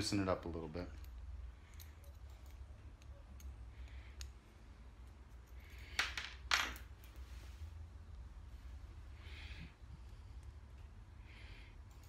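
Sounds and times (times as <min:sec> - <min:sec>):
steady low hum: 0:00.0 - 0:12.0
small parts clicking on counter: 0:05.0 - 0:06.9.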